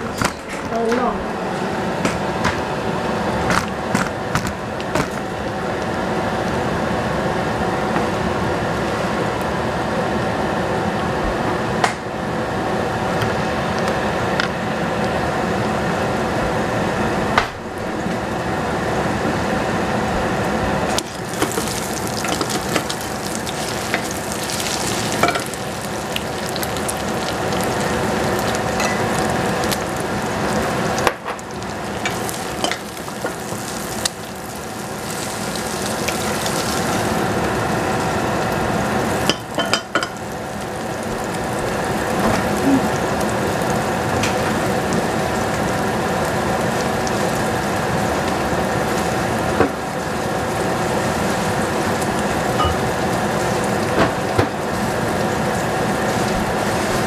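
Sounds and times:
egg sizzling in a pan: 20.9s - 57.0s.

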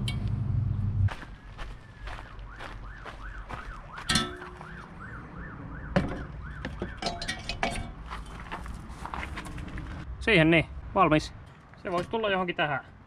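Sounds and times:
siren wailing: 1.4s - 7.2s
metal clanks: 4.0s - 4.7s, 6.0s - 8.6s.

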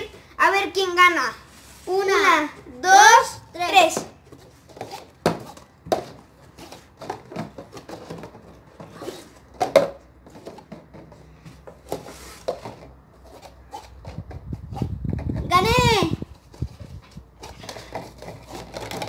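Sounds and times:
plastic cups clacking: 3.9s - 15.6s, 16.2s - 19.0s.

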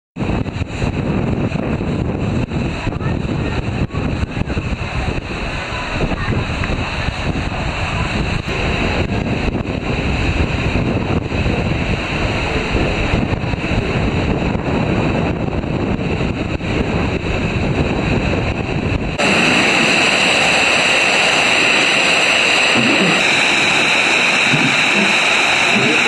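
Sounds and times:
wind buffeting microphone: 0.2s - 26.0s
rushing water: 18.7s - 26.0s.

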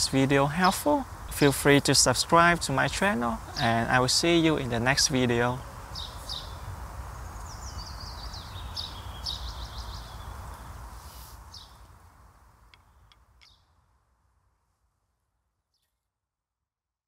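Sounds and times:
small birds chirping: 0.0s - 11.9s, 12.6s - 13.8s.

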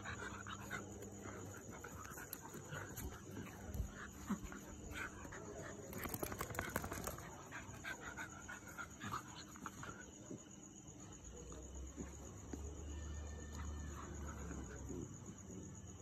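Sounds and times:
dogs panting: 0.0s - 11.2s.

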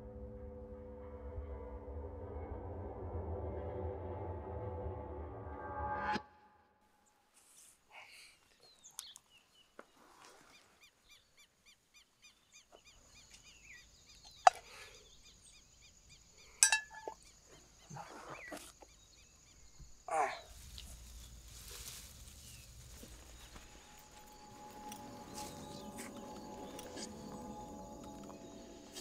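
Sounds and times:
person rustling on dry grass: 7.3s - 7.9s, 20.4s - 29.0s
steady high tone: 24.1s - 29.0s.

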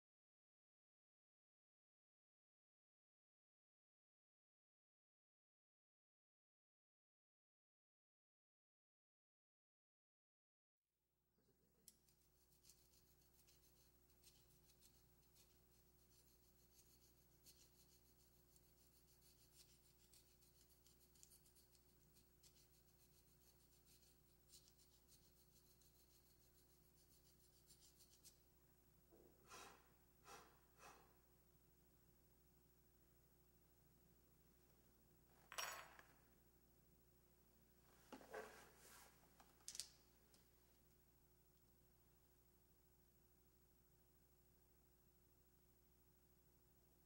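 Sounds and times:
hands scratching and rubbing: 12.1s - 28.4s
short scrapes: 29.4s - 31.2s.

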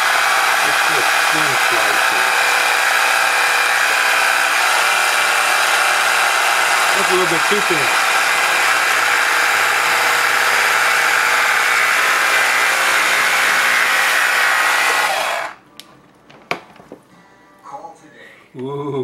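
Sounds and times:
electric carving knife buzzing: 0.0s - 15.6s.

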